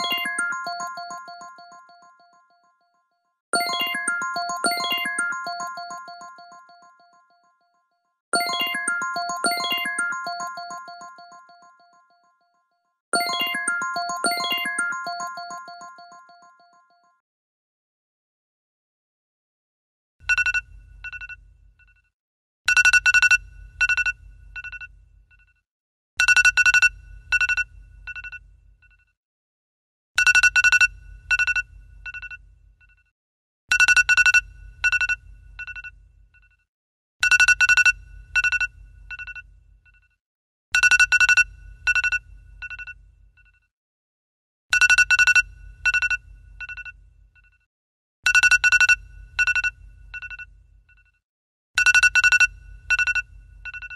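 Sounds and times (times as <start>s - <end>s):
phone ringtone chimes: 0.0s - 2.7s, 3.6s - 7.4s, 8.4s - 12.2s, 13.2s - 17.0s.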